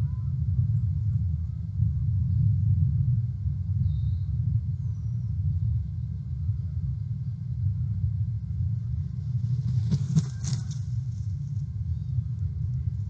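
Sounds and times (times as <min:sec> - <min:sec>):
steady low rumble: 0:00.0 - 0:13.0
eagle wingbeats: 0:09.1 - 0:12.2.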